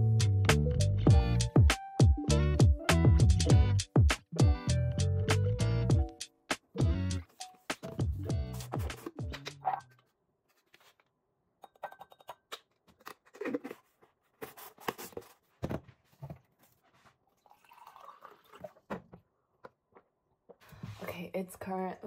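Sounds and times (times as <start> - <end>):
water pouring into a glass: 17.4 - 18.9.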